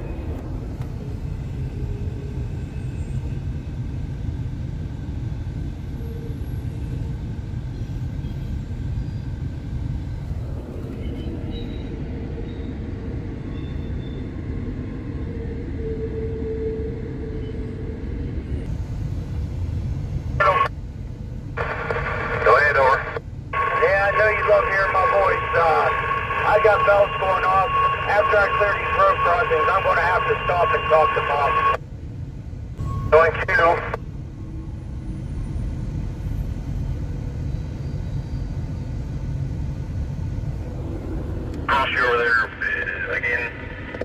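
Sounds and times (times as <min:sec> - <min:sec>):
train rumbling on rails: 0:00.0 - 0:22.2, 0:34.0 - 0:41.9
faint steady whine: 0:07.5 - 0:44.0.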